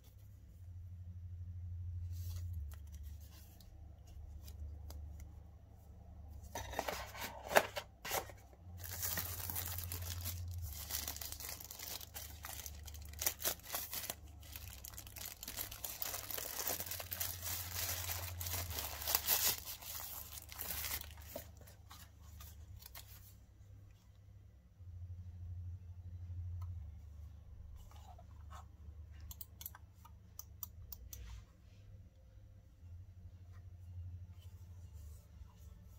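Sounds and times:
paper and cardboard rustling: 6.4 - 23.3
plastic bag crinkling: 8.0 - 21.7.

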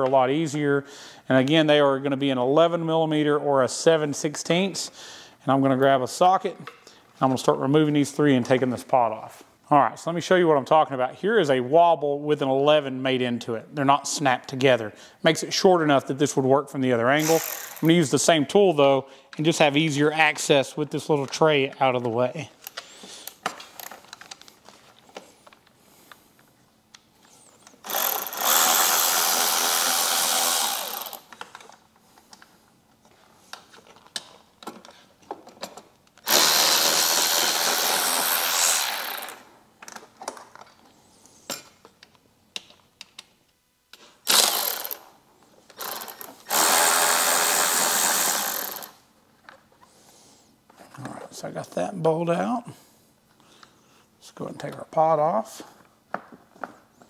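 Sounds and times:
cordless power tool spinning: 17.2 - 17.9, 27.8 - 31.5, 36.2 - 39.5, 44.2 - 45.1, 45.8 - 49.0.

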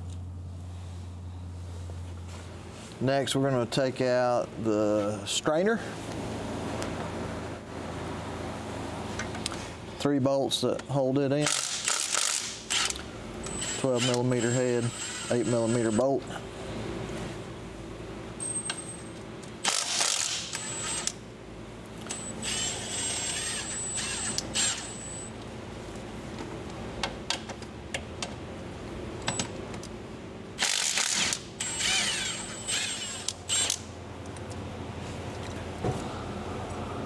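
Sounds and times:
impact wrench whining: 11.5 - 16.0, 19.6 - 21.2, 22.1 - 25.3, 30.6 - 33.9.

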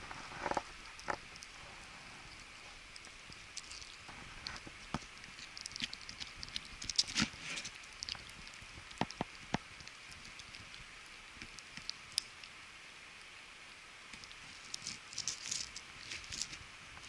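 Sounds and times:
puppy teeth gnawing bone: 2.3 - 12.6.

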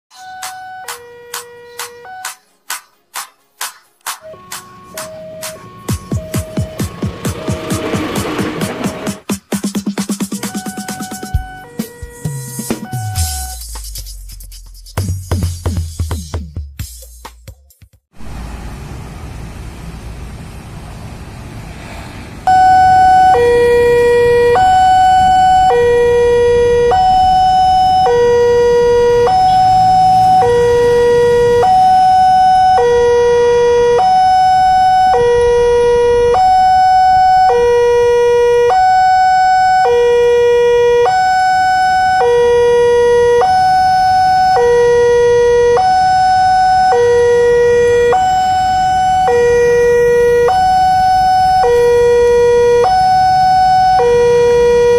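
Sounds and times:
two-tone crossing warning alarm: 0.1 - 2.4, 4.2 - 9.2, 10.4 - 13.6, 22.4 - 54.9.

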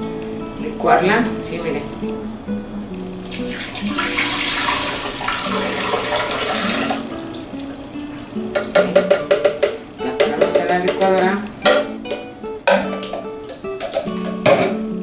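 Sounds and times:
liquid pouring into blender jar: 3.3 - 7.0.

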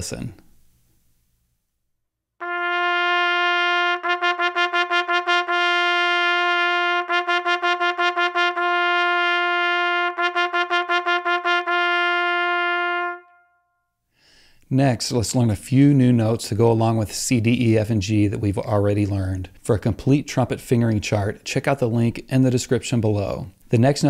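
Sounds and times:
trumpet holding a note: 2.4 - 13.7.

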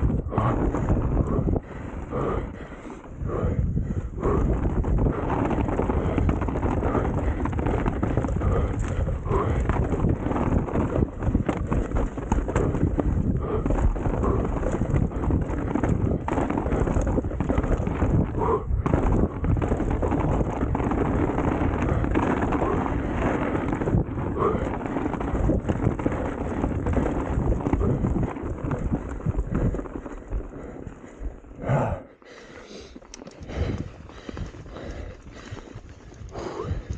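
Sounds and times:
bike rattling over rough ground: 0.0 - 31.6, 32.2 - 36.9
wind buffeting microphone: 0.0 - 32.0, 33.2 - 36.9.

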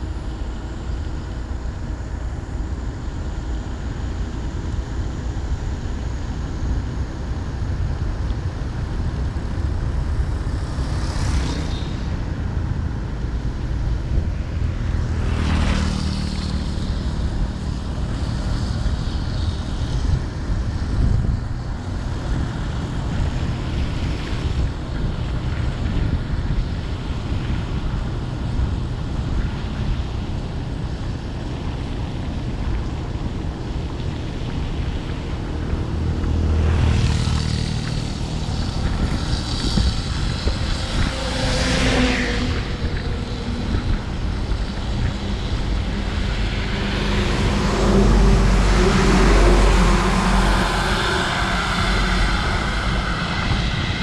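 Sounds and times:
vehicle engine and road noise: 0.0 - 54.0
wind: 0.0 - 54.0
passing whooshes: 35.9 - 54.0.

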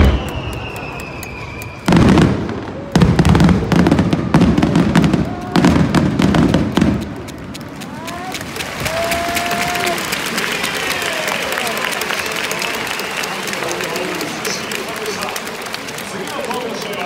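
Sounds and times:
falling firework whistle: 0.0 - 5.8
fireworks bursting: 0.0 - 8.9
fireworks crackling: 0.0 - 17.0.

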